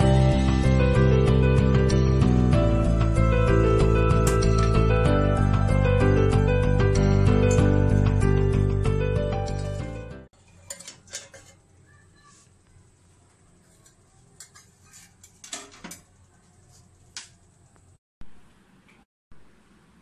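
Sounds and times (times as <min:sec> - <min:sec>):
metal cookware clinking: 0:09.5 - 0:11.8, 0:13.6 - 0:16.2.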